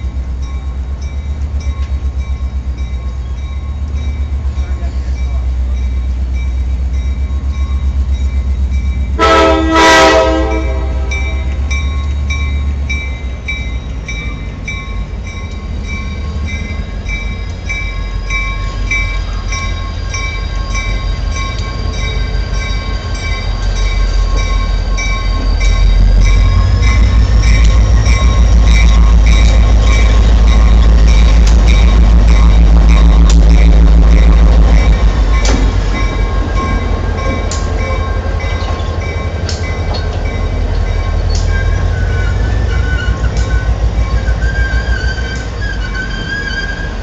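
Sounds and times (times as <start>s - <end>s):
diesel locomotive engine running: 0.0s - 47.0s
locomotive bell ringing: 0.0s - 47.0s
locomotive horn blasts: 9.2s - 11.6s.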